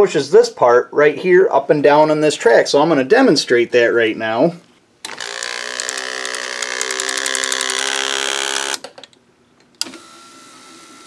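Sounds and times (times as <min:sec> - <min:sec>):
window motor whining with ticking: 0:05.1 - 0:08.9, 0:09.8 - 0:11.0.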